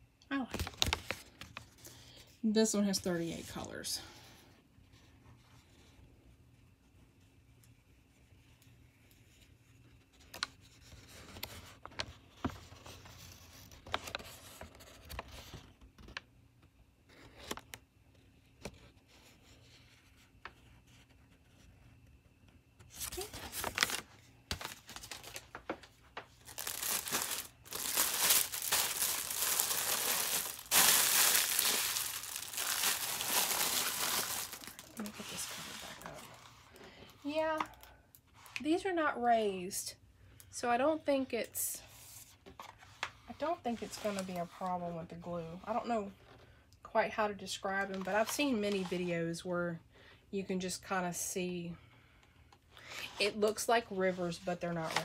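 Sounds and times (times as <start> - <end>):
dense plastic crinkling: 23.0 - 36.8.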